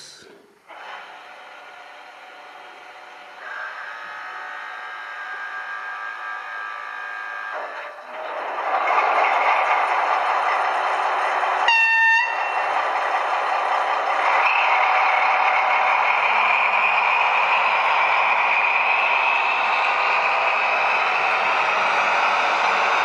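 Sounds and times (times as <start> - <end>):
model diesel engine sound: 0.0 - 23.0
locomotive horn blast: 11.7 - 12.6.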